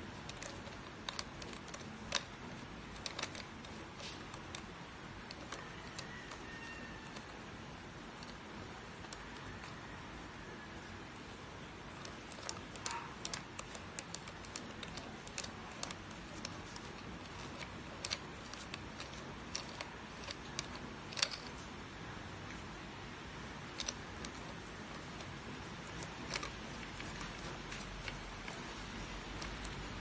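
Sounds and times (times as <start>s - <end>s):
coffee grinder parts clicking: 12.0s - 21.6s.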